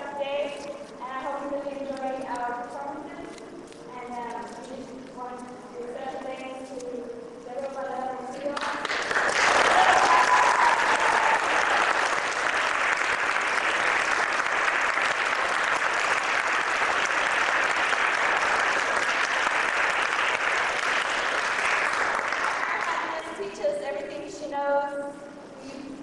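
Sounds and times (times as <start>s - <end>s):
audience applauding: 8.6s - 23.1s.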